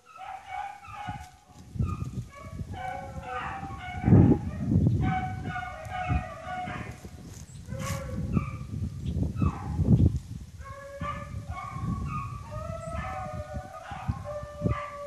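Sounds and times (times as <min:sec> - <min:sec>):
hounds baying: 0:00.0 - 0:07.1, 0:07.7 - 0:08.7, 0:09.4 - 0:09.8, 0:10.6 - 0:15.0.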